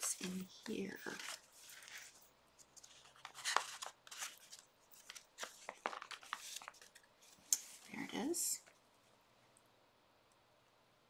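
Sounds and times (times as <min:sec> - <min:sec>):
paper pages rustling: 0:00.0 - 0:08.3.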